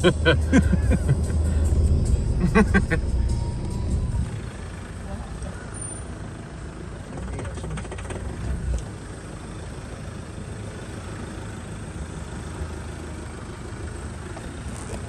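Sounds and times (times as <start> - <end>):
vehicle bumping and rattling: 0.0 - 9.4, 14.2 - 15.0
vehicle engine running slowly: 0.0 - 15.0.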